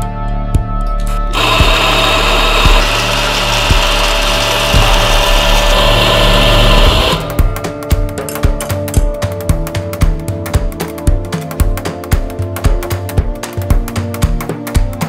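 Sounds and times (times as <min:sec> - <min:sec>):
background music with steady beat: 0:00.0 - 0:15.0
coffee grinder whirring: 0:01.1 - 0:07.5.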